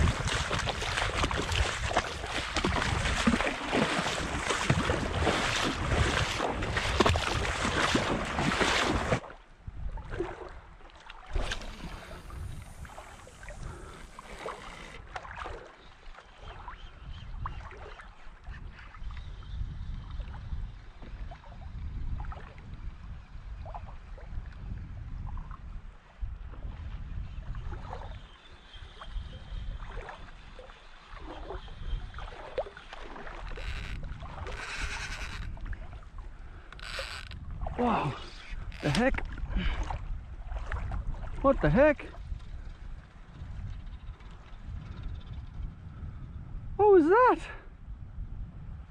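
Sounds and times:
small splashes: 0.0s - 9.4s, 10.0s - 16.8s, 29.8s - 41.5s
water sloshing and lapping: 0.0s - 44.6s
wind rumble on microphone: 0.0s - 48.9s.

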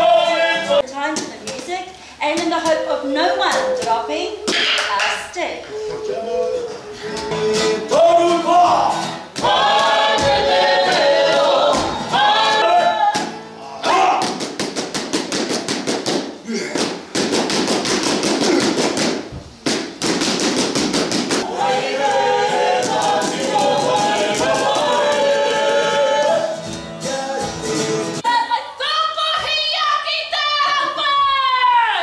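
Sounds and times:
group singing: 0.0s - 0.8s, 5.7s - 14.2s, 21.3s - 28.2s
single high voice singing: 5.6s - 14.0s, 21.4s - 28.3s
poi balls tapping hands: 14.2s - 21.4s.

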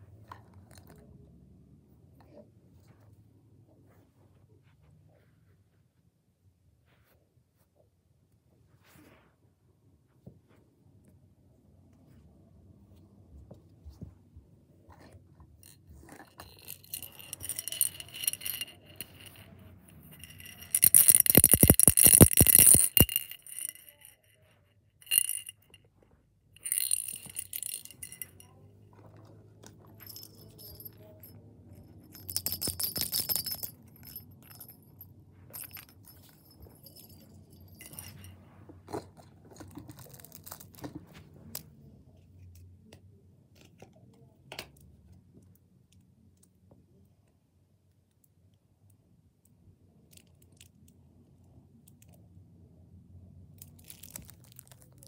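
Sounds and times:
jingle bell jingling: 16.1s - 24.4s, 25.0s - 25.8s, 26.6s - 28.6s, 29.9s - 38.4s.

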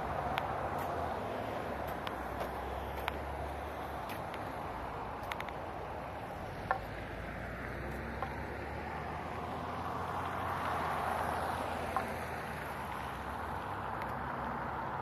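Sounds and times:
road traffic hiss: 0.0s - 15.0s
truck driving past: 6.3s - 15.0s.

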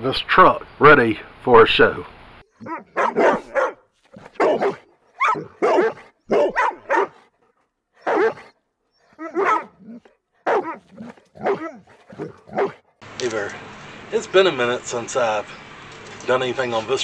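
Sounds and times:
dog barking: 2.6s - 7.3s, 8.0s - 8.5s, 9.1s - 12.8s.

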